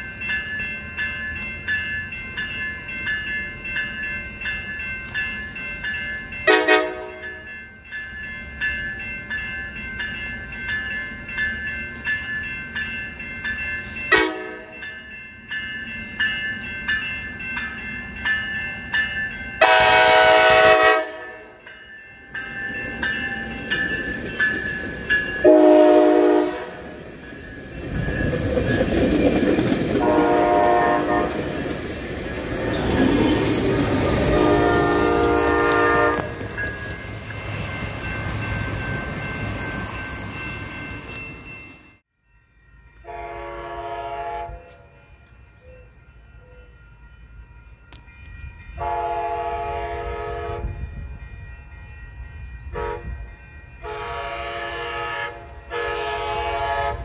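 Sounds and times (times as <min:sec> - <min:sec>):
multi-note train horn: 0:06.5 - 0:07.3, 0:14.1 - 0:14.7, 0:19.6 - 0:21.6, 0:25.4 - 0:27.0, 0:30.0 - 0:31.5, 0:34.2 - 0:36.4, 0:43.0 - 0:44.9, 0:48.8 - 0:50.8, 0:52.8 - 0:53.2, 0:53.8 - 0:57.0
distant train horn: 0:06.5 - 0:07.4, 0:14.1 - 0:14.8, 0:19.6 - 0:21.6, 0:25.4 - 0:27.0, 0:30.0 - 0:31.6, 0:34.2 - 0:36.4, 0:43.0 - 0:44.9, 0:48.8 - 0:50.8, 0:52.7 - 0:53.2, 0:53.8 - 0:57.0
train wheels rumbling: 0:08.8 - 0:42.0.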